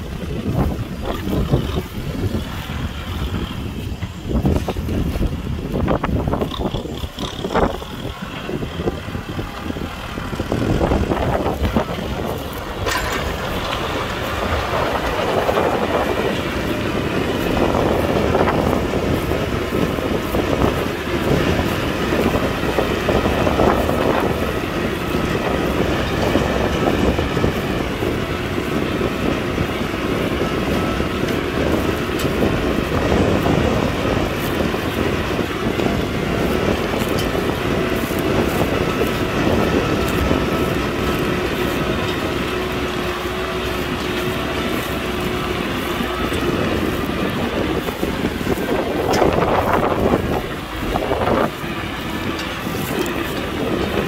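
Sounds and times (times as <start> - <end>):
tractor diesel engine under load: 0.0 - 54.0
metallic clatter and rattle: 10.6 - 29.7.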